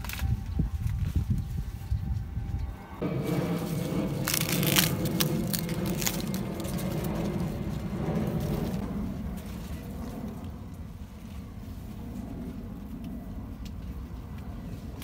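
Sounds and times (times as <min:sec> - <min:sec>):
leaves rustling and crackling: 0:00.0 - 0:12.9
steady low hum: 0:00.0 - 0:15.0
corn stalk snapping: 0:04.1 - 0:07.4.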